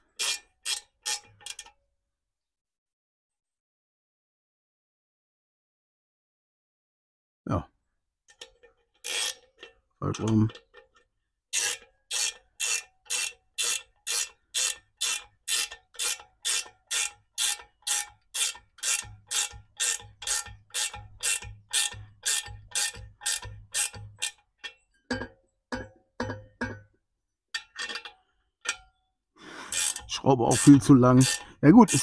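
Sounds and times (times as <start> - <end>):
ratchet wrench strokes: 0.1 - 1.7, 9.0 - 9.7, 11.5 - 24.4, 29.6 - 32.0.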